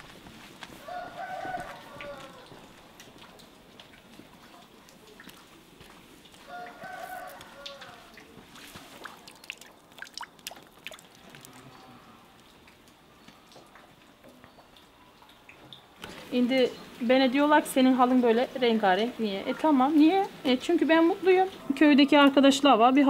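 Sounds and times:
quiet village ambience: 0.0 - 23.0
rooster crowing: 0.8 - 2.6, 6.4 - 8.2.

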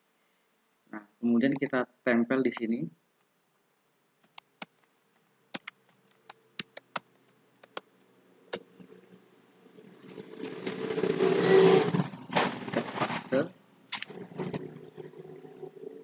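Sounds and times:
keyboard typing: 1.5 - 1.7, 4.2 - 7.9.

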